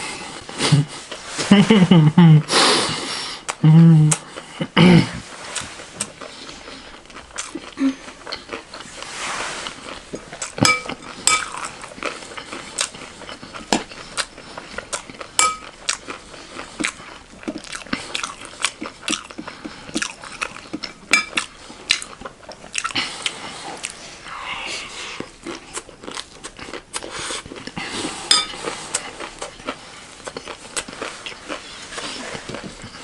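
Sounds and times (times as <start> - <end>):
spoon clinking against glass: 10.6 - 11.6, 15.4 - 15.7, 28.3 - 28.6.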